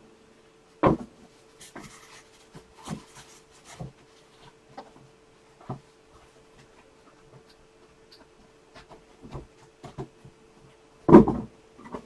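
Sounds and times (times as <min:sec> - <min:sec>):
faint steady hum: 0:00.0 - 0:12.0
knocks while rummaging: 0:00.8 - 0:01.2, 0:11.1 - 0:12.0
rustling: 0:01.1 - 0:10.8.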